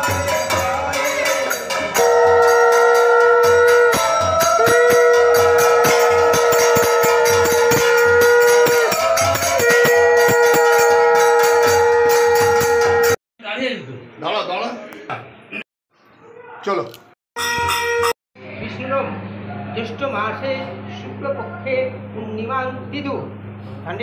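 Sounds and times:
hand drum rhythm: 0:00.0 - 0:13.2
small hand cymbals: 0:00.0 - 0:13.2
conch shell blasts: 0:02.0 - 0:13.2.

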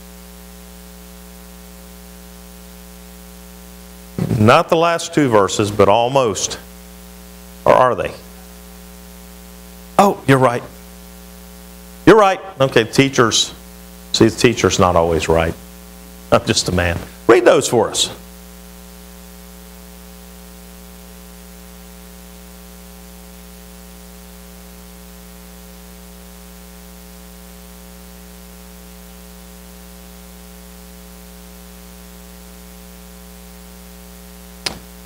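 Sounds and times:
electrical mains hum: 0:00.0 - 0:35.0.

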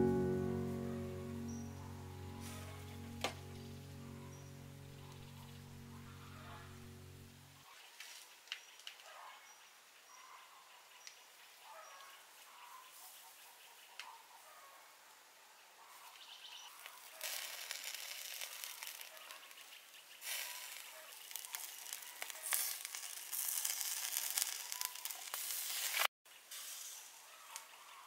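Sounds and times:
meat sizzling on a grill: 0:16.8 - 0:27.0.

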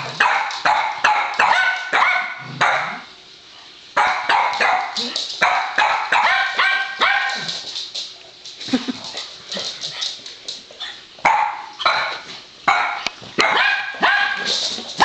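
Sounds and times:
small dogs barking: 0:00.0 - 0:03.1, 0:04.0 - 0:07.7, 0:11.2 - 0:15.0.

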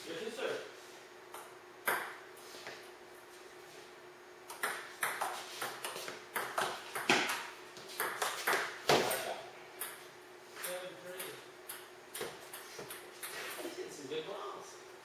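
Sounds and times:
ball bounce: 0:04.5 - 0:09.2
table tennis rally: 0:04.5 - 0:13.7.

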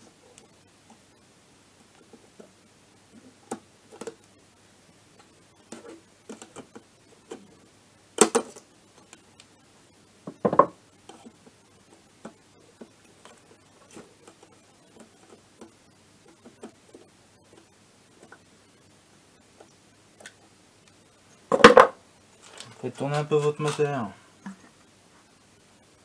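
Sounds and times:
louder knocks on metal: 0:10.3 - 0:10.8.

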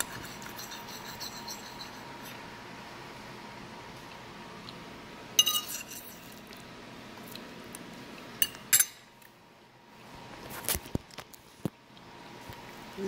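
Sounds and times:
fork clinking on ceramic plate: 0:05.4 - 0:06.3, 0:08.4 - 0:09.0.

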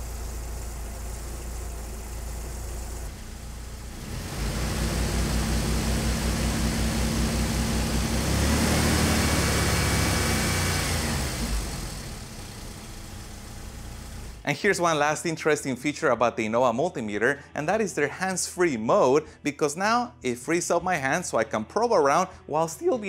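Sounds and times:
car engine idling and revving: 0:00.0 - 0:14.4.

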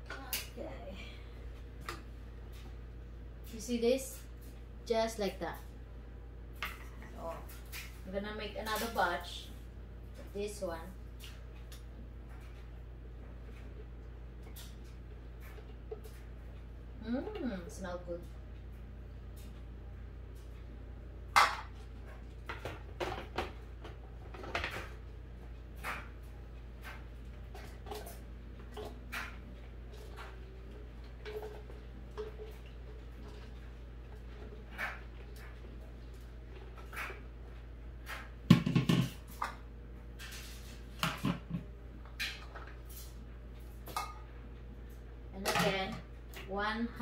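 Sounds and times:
colander knocking against blender jar: 0:38.5 - 0:39.2.

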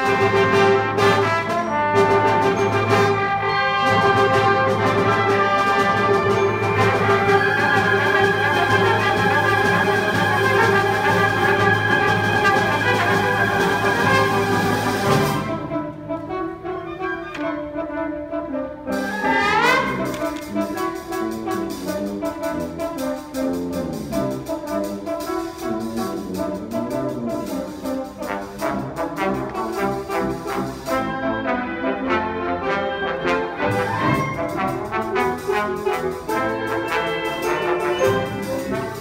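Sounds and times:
solo trombone: 0:00.0 - 0:39.0
wind band playing: 0:00.0 - 0:39.0
percussion strokes: 0:33.1 - 0:39.0.

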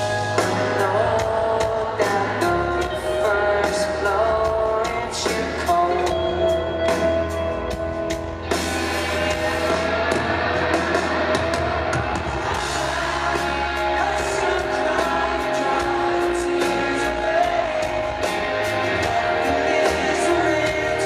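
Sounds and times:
person singing: 0:00.0 - 0:07.4, 0:12.1 - 0:21.0
live pop-rock band: 0:00.0 - 0:21.0.

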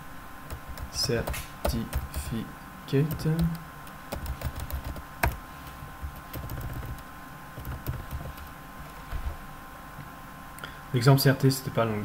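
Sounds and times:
computer keyboard typing: 0:00.5 - 0:02.4, 0:03.0 - 0:09.4.

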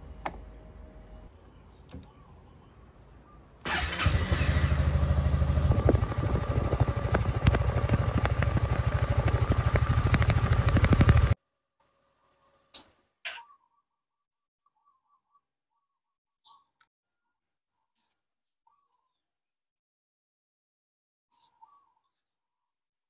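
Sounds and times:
scooter engine starting and idling: 0:03.6 - 0:11.4.

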